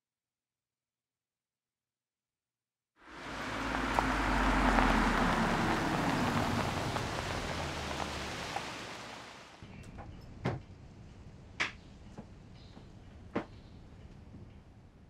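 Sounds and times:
low engine hum: 0:03.0 - 0:10.2
tyres crunching on gravel: 0:03.2 - 0:09.4.

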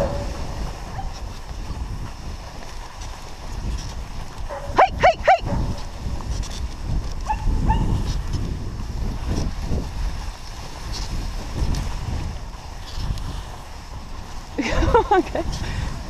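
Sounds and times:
sled running over snow: 0:00.0 - 0:16.0
dog yipping: 0:04.5 - 0:05.7, 0:07.3 - 0:08.0
dog barking: 0:04.5 - 0:05.8, 0:07.3 - 0:08.0.

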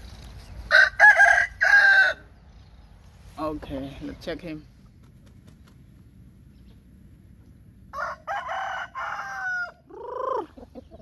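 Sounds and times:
rooster crowing: 0:00.7 - 0:02.3, 0:07.9 - 0:10.0.

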